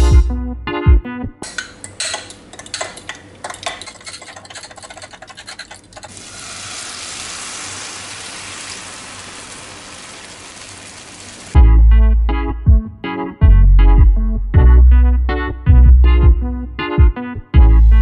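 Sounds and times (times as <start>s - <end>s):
eggs sizzling in frying pan: 6.1s - 11.6s.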